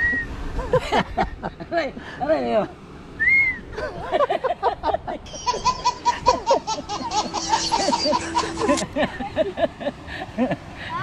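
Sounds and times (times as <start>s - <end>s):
people laughing: 3.8s - 10.6s
steady held tones: 5.2s - 8.9s.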